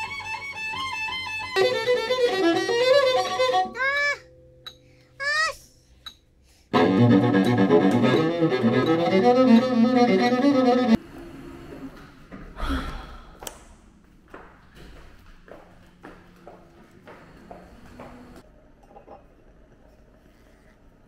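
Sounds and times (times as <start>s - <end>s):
cello bowing low notes: 6.7s - 11.0s.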